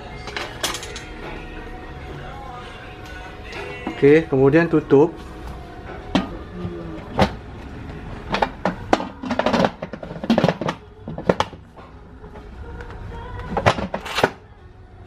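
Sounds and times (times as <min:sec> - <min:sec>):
pot lid clanking and scraping: 0:08.3 - 0:11.6.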